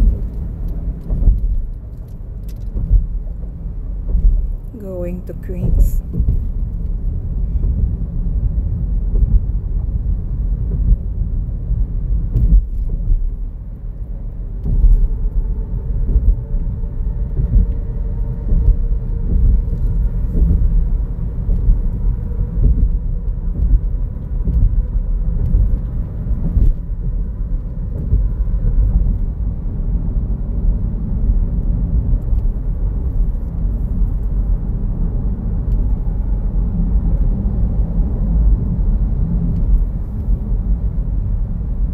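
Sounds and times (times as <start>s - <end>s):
car engine and tyre rumble: 0.0s - 41.9s.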